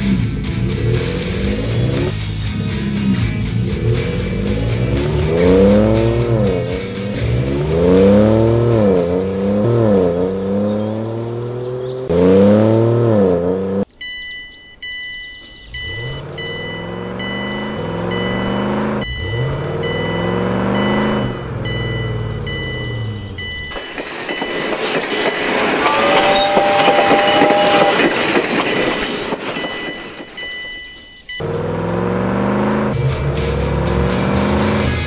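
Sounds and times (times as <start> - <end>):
truck engine revving: 0.0 - 14.0, 14.9 - 35.0
level crossing warning bell: 8.1 - 31.7.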